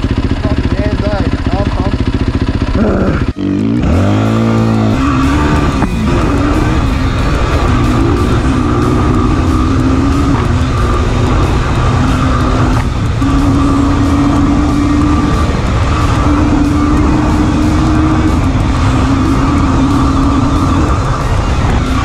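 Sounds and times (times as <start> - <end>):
dirt bike engine running: 0.0 - 22.0
wind rush over microphone: 10.3 - 22.0.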